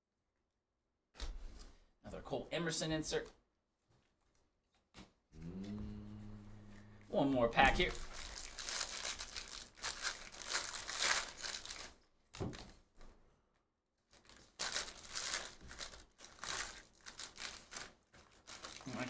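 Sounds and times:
foil wrapper tearing and crinkling: 7.7s - 12.6s, 14.1s - 19.0s.

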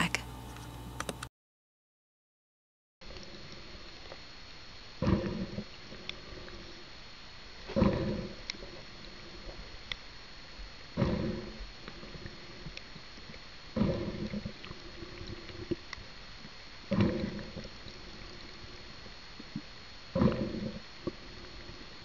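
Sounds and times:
bubbles gurgling underwater: 5.0s - 5.7s, 7.7s - 8.8s, 13.7s - 15.8s, 16.9s - 18.0s, 19.4s - 21.6s.

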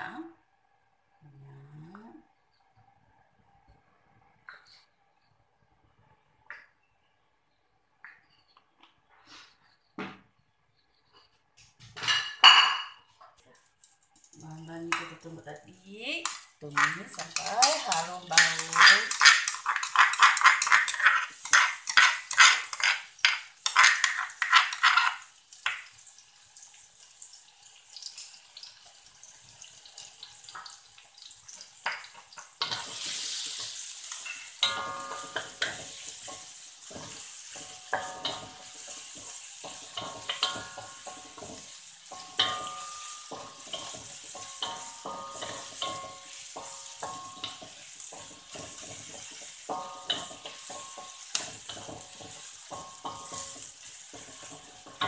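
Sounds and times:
paste sizzling in hot oil: 16.1s - 55.0s
metal spoon scraping stone mortar: 16.6s - 25.2s
wooden spatula scraping a wok: 16.7s - 25.3s, 32.6s - 55.0s.

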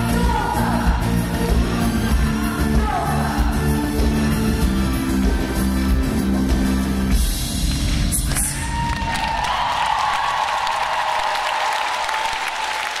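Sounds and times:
pop-rock band playing: 0.0s - 8.2s
bass guitar: 0.0s - 8.8s
drums: 0.0s - 10.4s.

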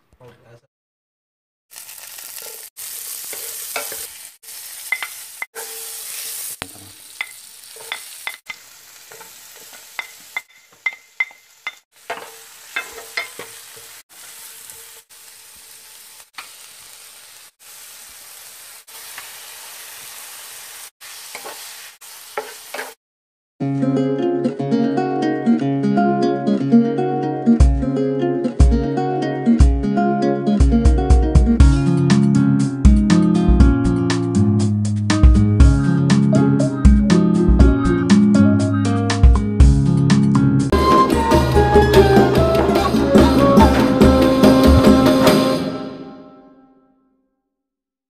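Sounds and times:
vegetables sizzling in a pan: 1.7s - 23.0s
wooden spatula knocking and scraping pan: 9.1s - 13.6s, 22.3s - 23.0s
acoustic guitar music: 23.6s - 34.4s, 35.2s - 39.6s, 40.5s - 46.4s.

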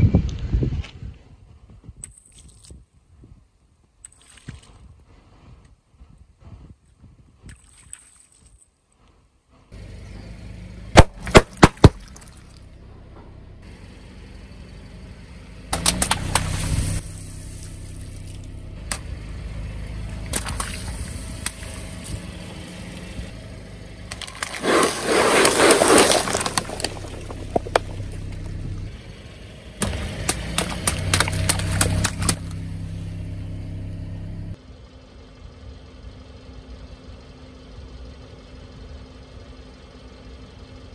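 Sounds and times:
car engine running at low revs: 9.0s - 40.9s
water balloons bursting: 11.0s - 12.6s, 15.7s - 18.4s, 20.3s - 22.1s, 24.1s - 28.5s, 29.8s - 32.6s
water splashing: 15.8s - 18.5s, 20.2s - 22.3s, 24.1s - 28.4s, 29.8s - 32.6s.

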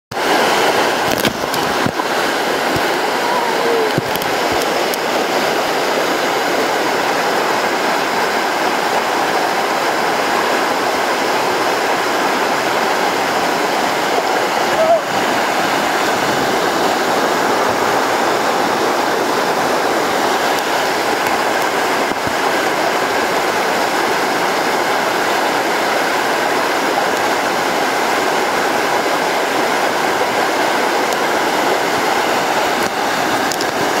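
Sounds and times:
water rushing over weir: 0.1s - 34.0s.

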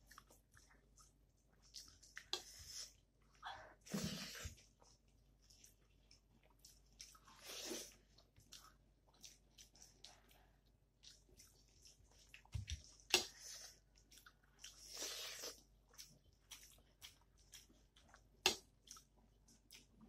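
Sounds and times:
chewing and mouth smacks: 0.0s - 3.0s, 4.6s - 20.0s
fingers squishing rice: 4.9s - 20.0s.

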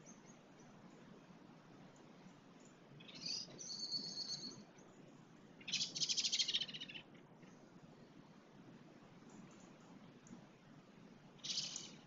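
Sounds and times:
bird chirping: 2.6s - 4.9s, 5.6s - 7.6s, 11.4s - 12.0s
bird trill: 3.0s - 4.6s, 5.6s - 7.1s, 11.4s - 12.0s.

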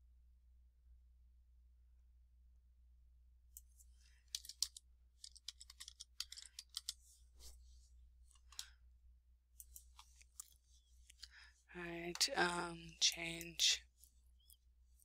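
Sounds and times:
typing on computer keyboard: 4.3s - 7.0s.

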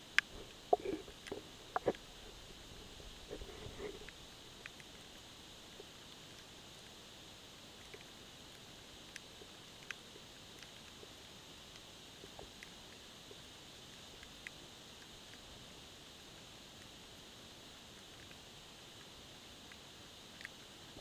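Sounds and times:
sharp underwater clicks: 4.0s - 5.0s.

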